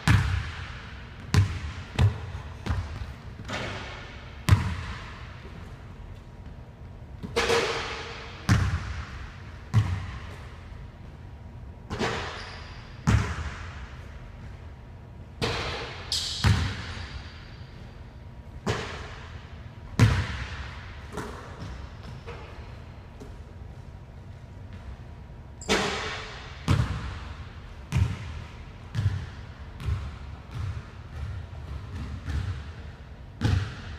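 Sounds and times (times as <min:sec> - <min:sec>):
ball striking rim: 0:00.0 - 0:05.2, 0:07.2 - 0:10.4, 0:11.9 - 0:12.4, 0:15.4 - 0:17.4, 0:25.6 - 0:27.3
basketball bouncing on wooden floor: 0:01.2 - 0:05.6, 0:08.5 - 0:09.1, 0:09.7 - 0:10.5, 0:25.6 - 0:27.3, 0:27.9 - 0:32.8, 0:33.4 - 0:33.9.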